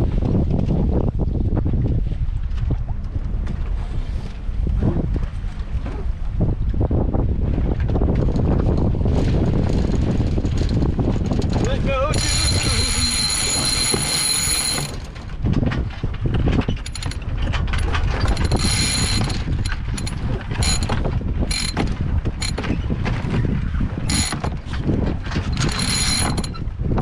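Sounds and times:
wind rumble on microphone: 0.0 - 27.0
winch ratcheting: 9.6 - 22.8, 24.1 - 27.0.

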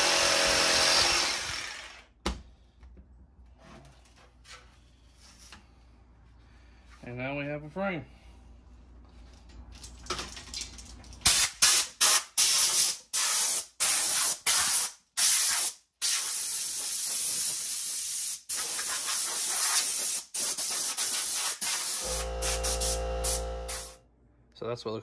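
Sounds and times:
compressed air hissing: 11.3 - 24.0.

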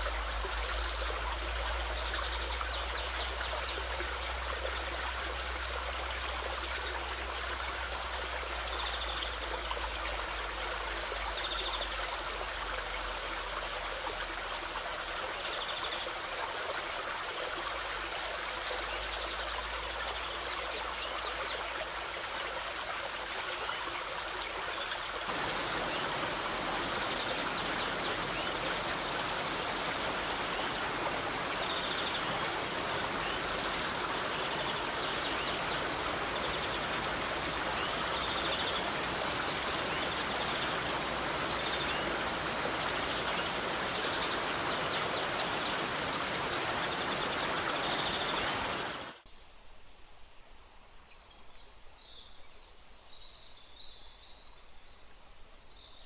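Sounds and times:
stream water rushing: 0.0 - 15.4, 21.8 - 49.2.

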